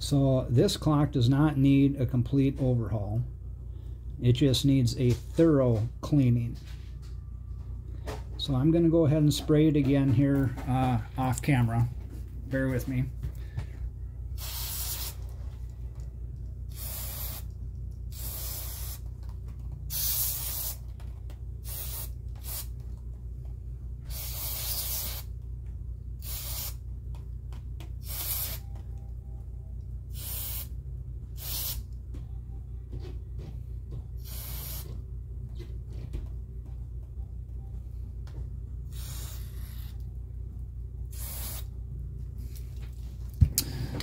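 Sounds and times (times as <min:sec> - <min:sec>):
steady low hum: 0:00.0 - 0:44.0
aerosol spray can hissing: 0:14.4 - 0:15.2, 0:16.7 - 0:17.5, 0:18.1 - 0:19.0, 0:19.9 - 0:20.8, 0:21.6 - 0:22.7, 0:24.1 - 0:25.3, 0:26.2 - 0:26.8, 0:28.0 - 0:28.6, 0:30.1 - 0:30.7, 0:31.4 - 0:31.8, 0:34.2 - 0:34.9, 0:38.9 - 0:40.0, 0:41.1 - 0:41.7.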